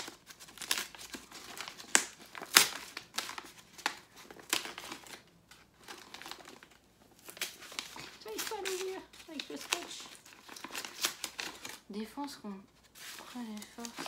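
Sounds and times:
wrapping paper crinkling and tearing: 0.0 - 14.0.

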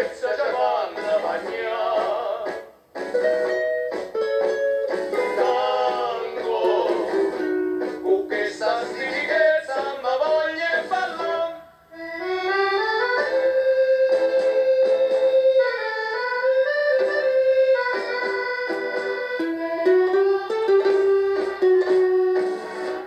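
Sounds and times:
plucked guitar: 2.5 - 10.0, 16.8 - 23.0
accordion melody: 3.0 - 10.0, 12.0 - 23.0.

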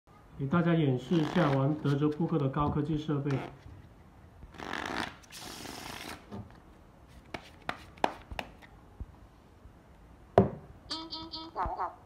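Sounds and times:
cards riffle-shuffled: 7.1 - 8.7
cards tapped on felt: 7.3 - 8.7.

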